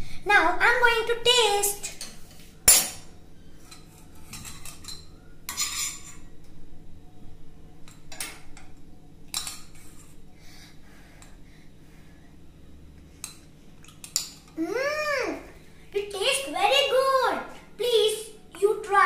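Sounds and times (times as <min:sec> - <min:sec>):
metal spoon scraping frying pan: 0:05.5 - 0:06.3.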